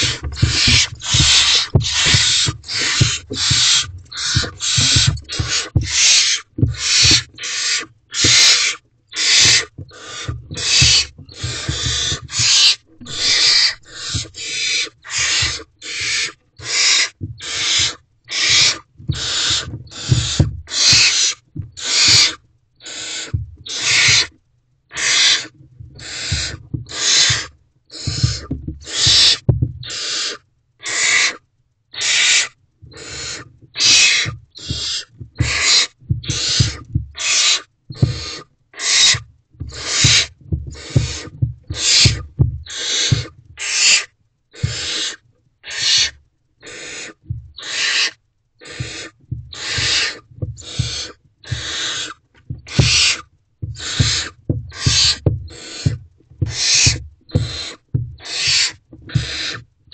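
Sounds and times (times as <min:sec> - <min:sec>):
owlets hissing begging calls: 0:00.0 - 0:24.3, 0:25.0 - 0:31.4, 0:32.0 - 0:53.2, 0:53.8 - 0:59.6
low thumps on nest litter: 0:00.0 - 0:24.4, 0:25.1 - 0:30.0, 0:32.8 - 0:44.0, 0:44.6 - 0:45.0, 0:47.2 - 0:48.0, 0:48.6 - 0:59.6.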